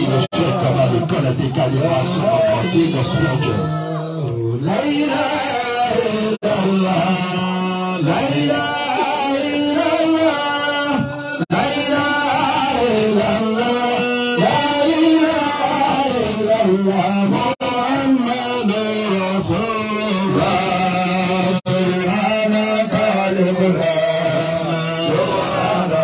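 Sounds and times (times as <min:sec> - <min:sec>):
person singing melodic chant: 0:00.0 - 0:26.0.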